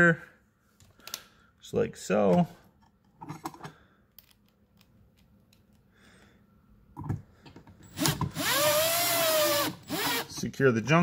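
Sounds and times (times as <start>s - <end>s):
cordless drill motor whining: 7.9s - 10.4s.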